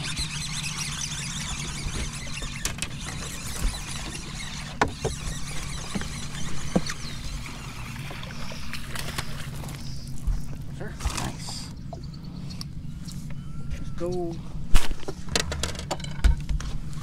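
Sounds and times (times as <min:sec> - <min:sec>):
tackle and boat clicks: 0:00.0 - 0:09.8
steady low hum: 0:00.0 - 0:17.0.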